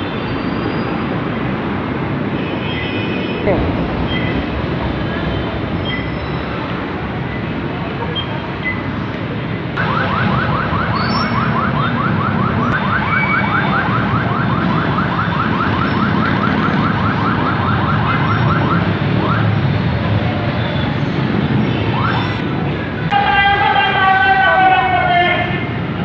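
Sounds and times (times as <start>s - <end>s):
street noise: 0.0s - 26.0s
car alarm chirping: 5.7s - 6.6s, 9.8s - 22.4s.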